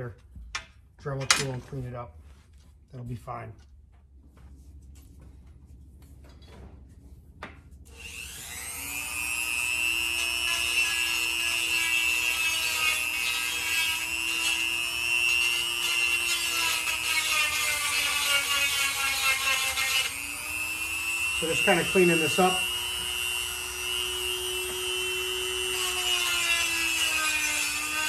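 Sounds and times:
rotary tool grinding whine: 7.9 - 28.0.

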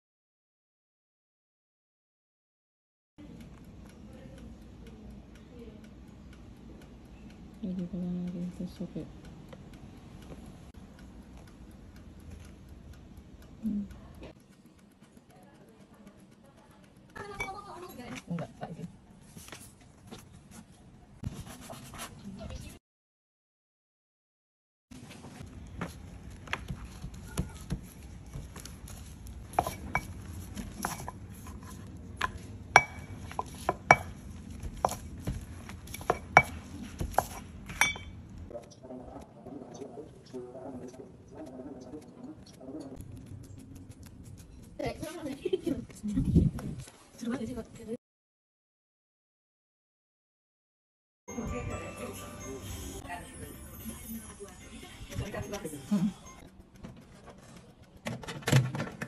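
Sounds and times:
faint mechanical ticking: 3.2 - 19.9.

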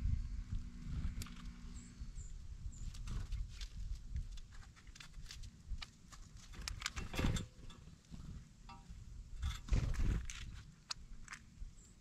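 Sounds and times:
steady low rumble: 0.0 - 4.6
birds pecking seed from metal tub: 2.8 - 12.0.

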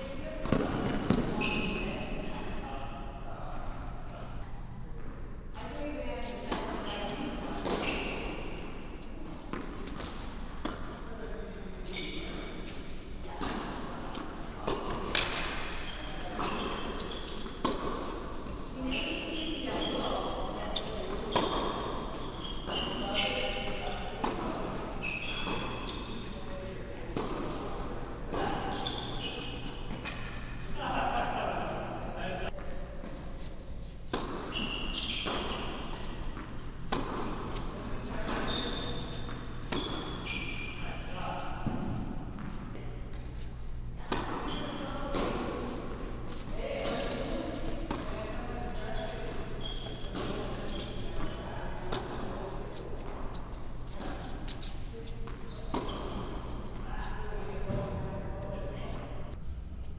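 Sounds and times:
tennis shoes squeaking: 0.5 - 2.6, 6.5 - 30.8, 33.4 - 57.1
steady low hum: 35.3 - 59.9.

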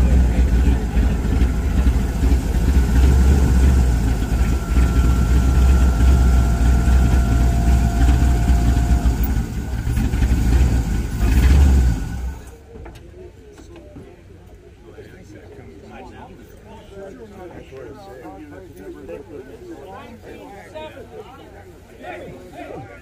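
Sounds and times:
pickup engine idling: 0.0 - 12.7.

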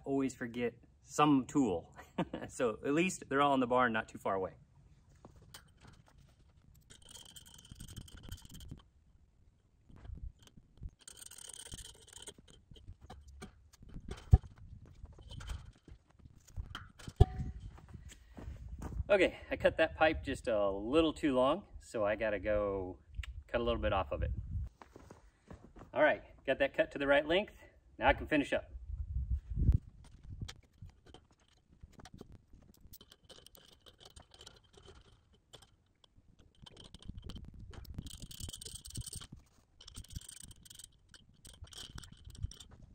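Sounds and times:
knocks clicks and scrapes: 5.2 - 8.9, 9.9 - 18.2, 29.8 - 42.9.

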